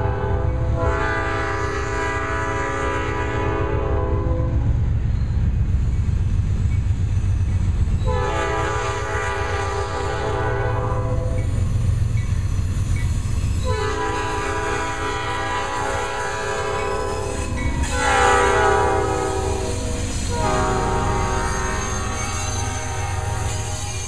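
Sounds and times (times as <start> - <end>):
locomotive horn blasts: 0.0 - 4.6, 8.0 - 11.5, 13.6 - 24.0
locomotive engines and wheels rumbling: 0.0 - 24.0.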